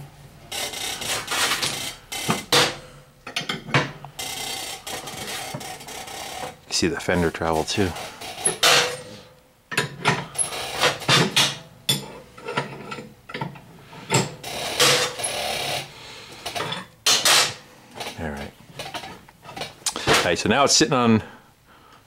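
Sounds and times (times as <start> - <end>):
metallic clicks and clunks: 0.6 - 4.3, 9.7 - 15.2.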